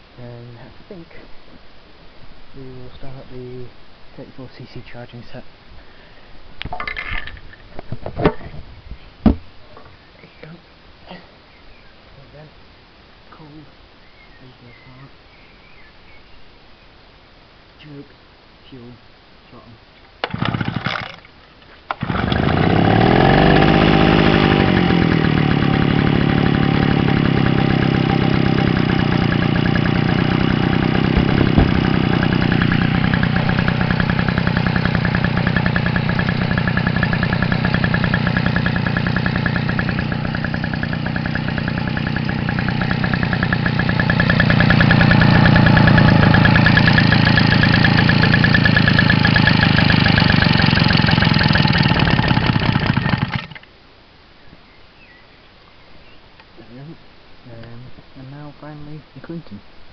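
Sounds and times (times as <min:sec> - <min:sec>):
small engine running: 0:20.2 - 0:21.3, 0:22.0 - 0:53.7.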